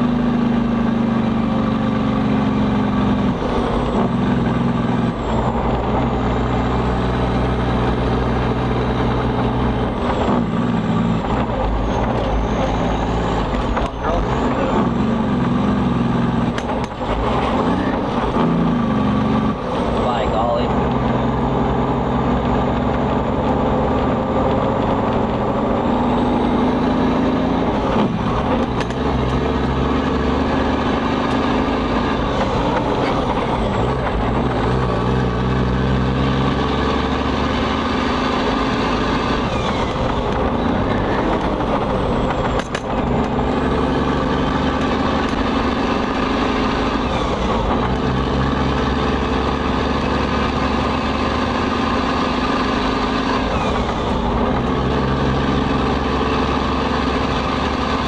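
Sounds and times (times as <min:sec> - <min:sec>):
truck diesel engine running: 0:00.0 - 0:58.0.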